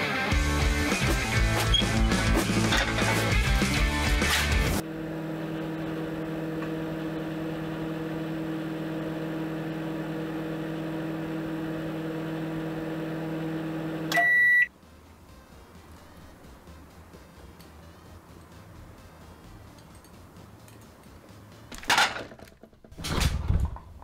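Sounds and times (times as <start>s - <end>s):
microwave oven humming: 4.2s - 15.4s
microwave high beep: 14.1s - 14.7s.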